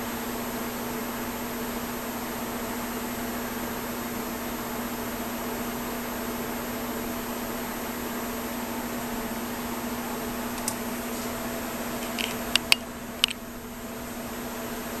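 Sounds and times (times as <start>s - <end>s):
room noise hum and hiss: 0.0s - 15.0s
sharp light clicks: 10.6s - 11.4s, 12.0s - 13.4s.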